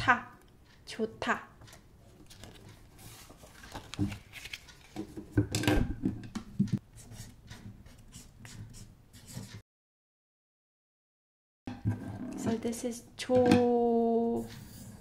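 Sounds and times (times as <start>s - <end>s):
paper card rustling: 2.0s - 5.2s
marker scratching on card: 7.0s - 9.6s.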